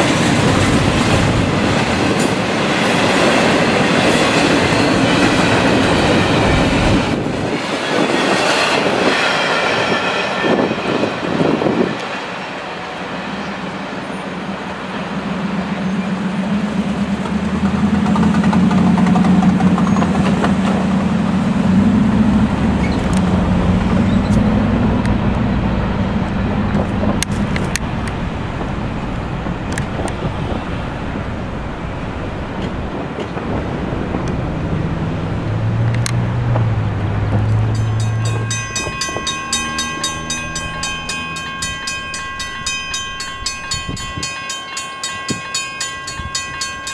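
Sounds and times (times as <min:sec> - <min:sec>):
railroad crossing bell ringing: 0:00.0 - 0:13.8, 0:37.4 - 0:46.9
diesel train rumbling: 0:00.0 - 0:46.9.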